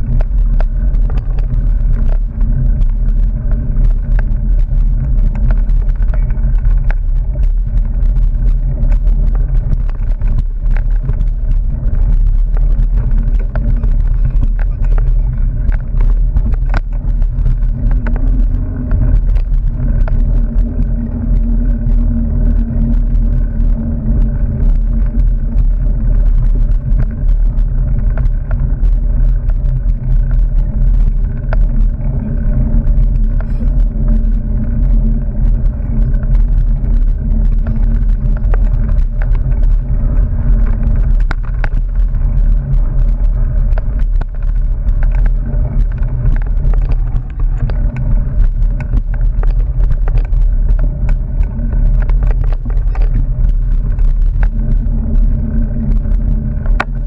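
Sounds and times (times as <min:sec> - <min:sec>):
bike clicks and rattles: 0:00.0 - 0:57.0
muffled wind rumble: 0:00.0 - 0:57.0.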